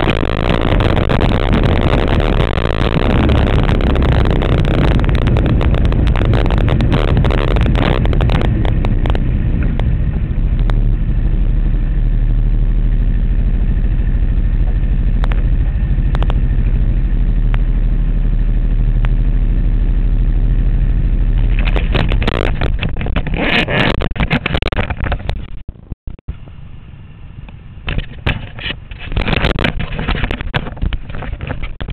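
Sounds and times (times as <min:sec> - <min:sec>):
knocking and rubbing on microphone: 0:00.0 - 0:11.4, 0:14.6 - 0:16.8, 0:21.4 - 0:25.7, 0:27.9 - 0:31.9
race car engine running: 0:00.0 - 0:31.9.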